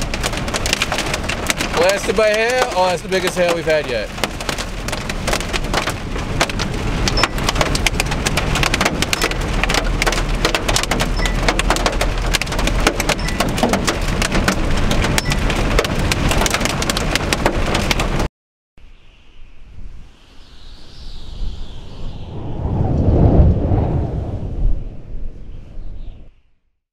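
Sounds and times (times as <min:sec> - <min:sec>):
car rumbling on road: 0:00.0 - 0:18.3
hail clattering on car: 0:00.0 - 0:18.3.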